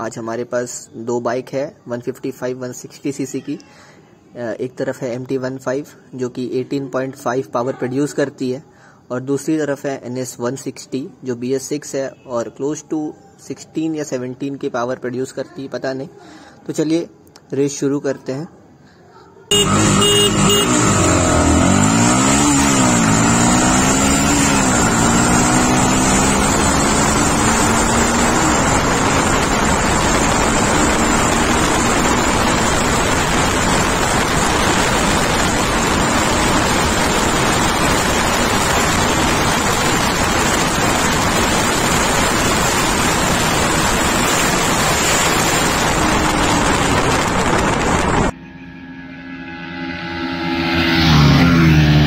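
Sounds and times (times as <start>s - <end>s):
motorcycle engine accelerating: 19.5s - 48.4s, 49.0s - 52.0s
wind rush on microphone: 28.4s - 48.3s.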